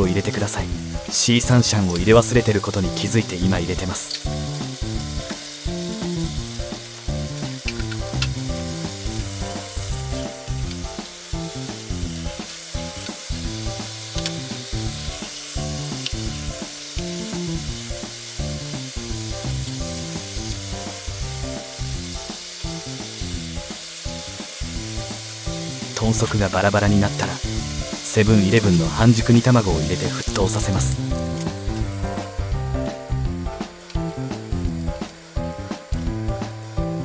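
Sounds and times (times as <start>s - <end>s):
sauce bubbling and sizzling: 0.0s - 37.0s
soft background music: 0.0s - 37.0s
chopsticks clicking on pan: 14.2s - 14.4s.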